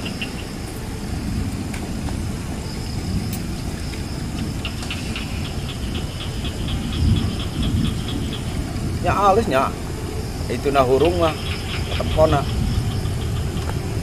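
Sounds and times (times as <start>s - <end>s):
diesel locomotive engine rumble: 0.0s - 14.0s
rapid high ticking: 4.2s - 14.0s.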